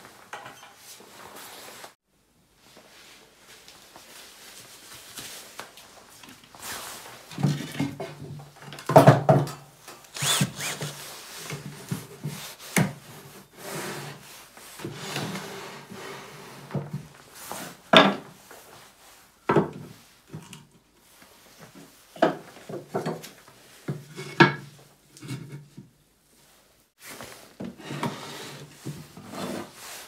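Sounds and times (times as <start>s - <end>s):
cordless drill driving screws: 10.2s - 11.0s.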